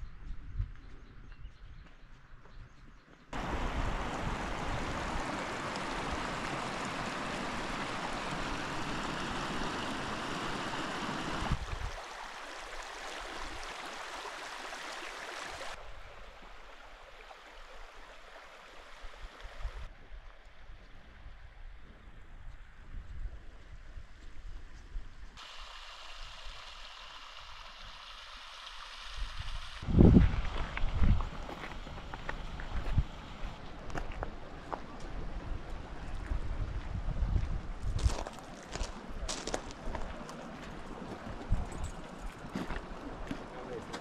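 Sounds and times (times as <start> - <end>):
rushing water: 3.4 - 19.9, 25.4 - 36.9, 38.0 - 44.0.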